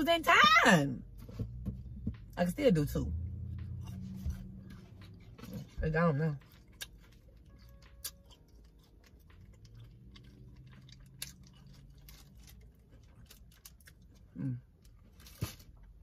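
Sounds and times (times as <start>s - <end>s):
person chewing food: 3.5s - 16.0s.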